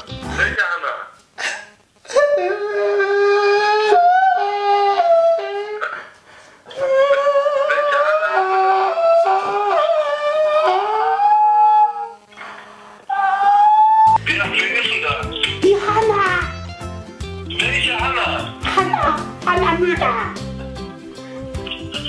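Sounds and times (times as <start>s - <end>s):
man wailing in falsetto: 2.1s - 6.1s, 6.7s - 12.2s, 13.1s - 14.2s.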